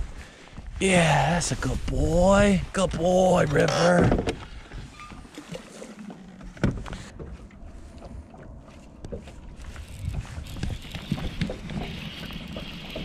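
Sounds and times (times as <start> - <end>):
wind and water rumble: 0.0 - 13.0
fishing reel clicks: 9.8 - 13.0.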